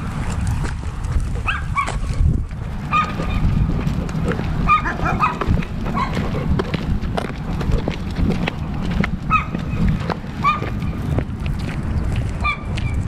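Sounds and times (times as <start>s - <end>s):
low rumble of wind: 0.0s - 13.0s.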